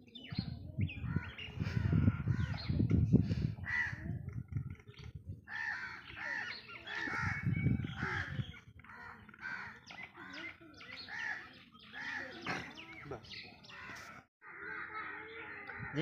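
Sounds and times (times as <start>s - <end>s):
crow cawing: 8.0s - 10.5s, 13.7s - 16.0s.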